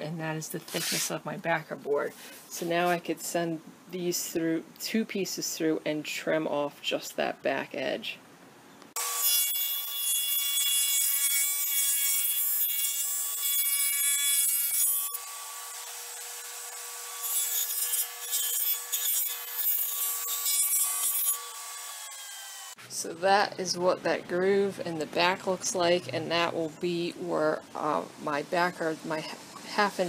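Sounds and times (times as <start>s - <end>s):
saw cutting plywood: 9.0s - 22.8s
table saw blade whine: 9.0s - 22.8s.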